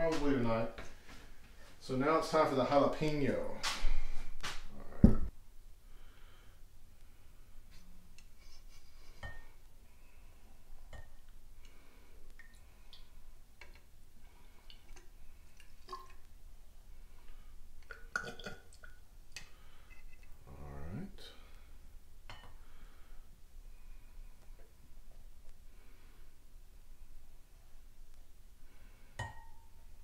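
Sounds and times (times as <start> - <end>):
liquid dripping: 11.0 - 13.9, 14.5 - 16.4.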